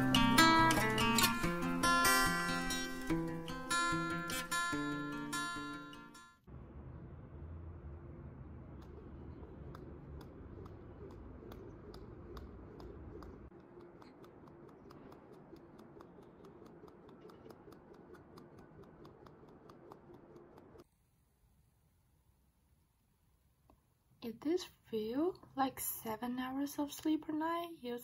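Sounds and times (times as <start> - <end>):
low rumble: 6.5 - 13.5.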